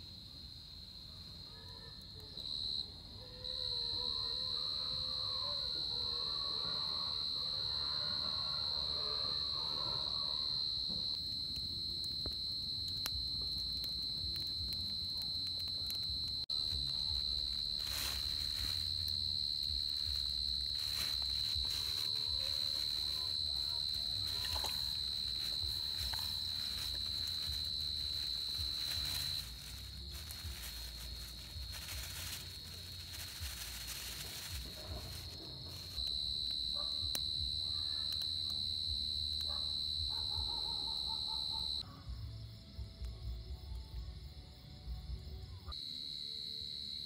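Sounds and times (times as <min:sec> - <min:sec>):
night insects droning: 0:00.0 - 0:47.0.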